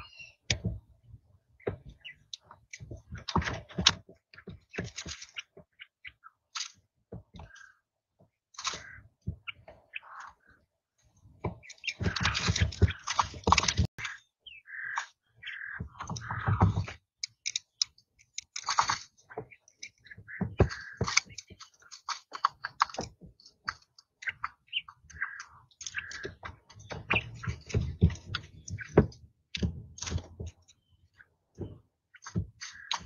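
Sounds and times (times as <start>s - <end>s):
chicks pecking and scratching: 1.6s - 7.7s, 11.4s - 14.2s, 14.9s - 30.8s, 31.6s - 33.0s.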